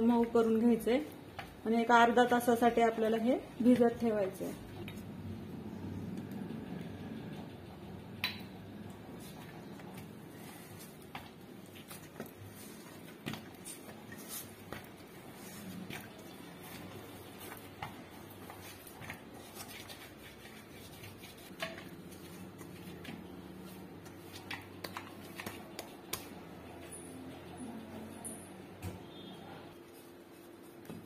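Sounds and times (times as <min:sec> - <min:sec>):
dough squishing: 0:09.0 - 0:26.8.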